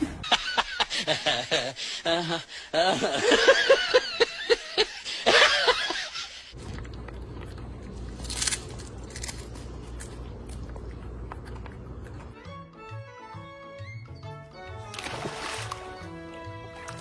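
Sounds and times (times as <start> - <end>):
person laughing hard: 0.2 - 6.5
steady low hum: 6.5 - 12.4.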